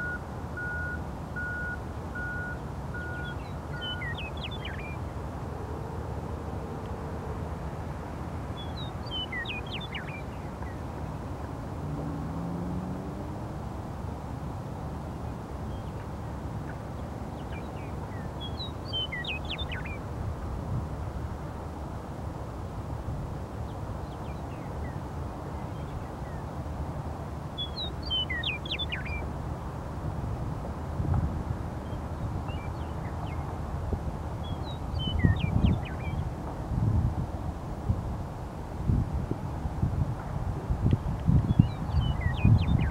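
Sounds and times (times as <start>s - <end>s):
meadowlark singing: 0.0s - 5.1s, 8.6s - 10.9s, 17.3s - 20.0s, 27.6s - 29.3s, 31.8s - 33.5s, 34.4s - 36.3s, 41.3s - 42.9s.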